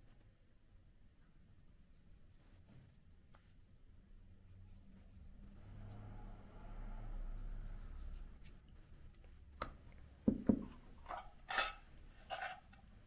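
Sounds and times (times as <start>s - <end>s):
dishes scraping: 10.6s - 12.8s.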